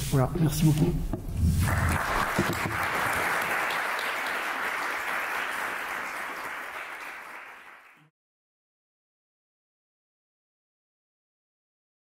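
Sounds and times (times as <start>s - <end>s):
audience applauding: 1.6s - 8.1s.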